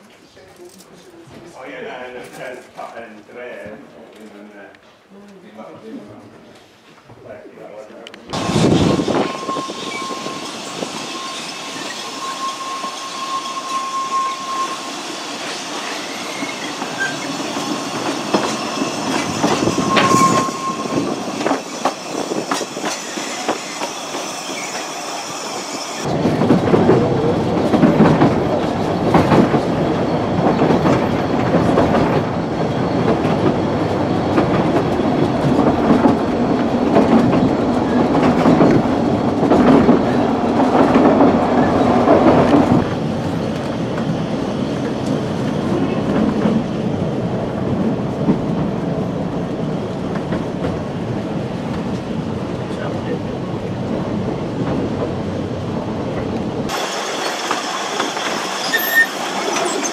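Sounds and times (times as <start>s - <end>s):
train wheel squeal: 8.4s - 27.4s, 28.5s - 38.7s, 41.4s - 46.9s, 56.7s - 59.9s.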